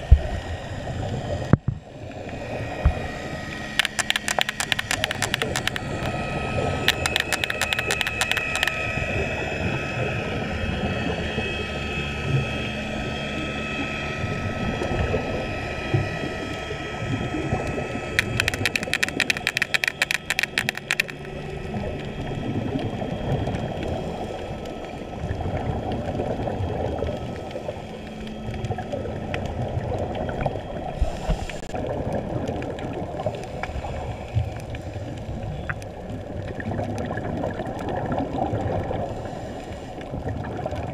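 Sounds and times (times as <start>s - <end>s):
muffled underwater drone: 0.0s - 40.9s
rapid crackling clicks: 3.8s - 6.2s, 6.8s - 8.8s, 18.2s - 21.5s
thin steady tones: 3.8s - 8.8s, 18.2s - 21.6s.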